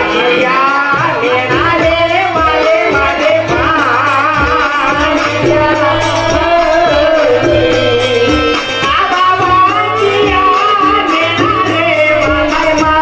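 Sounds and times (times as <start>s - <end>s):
drum beats: 1.8s - 10.6s
person singing folk melody: 4.5s - 8.8s
held-tone drone accompaniment: 4.6s - 9.6s.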